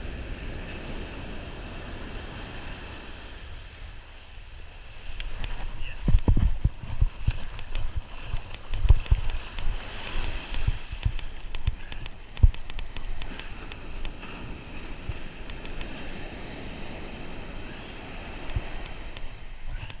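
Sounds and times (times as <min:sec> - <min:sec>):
surf washing on shore: 0:00.0 - 0:20.0
wind buffeting microphone: 0:05.1 - 0:20.0
rapid sharp ticks: 0:07.4 - 0:14.2, 0:15.4 - 0:15.9.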